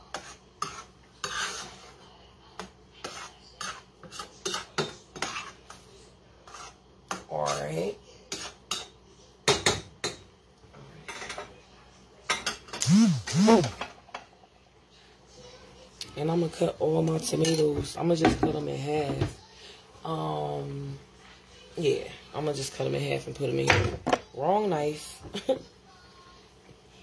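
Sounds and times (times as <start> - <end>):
utensil scraping a metal skillet: 0.0 - 8.9.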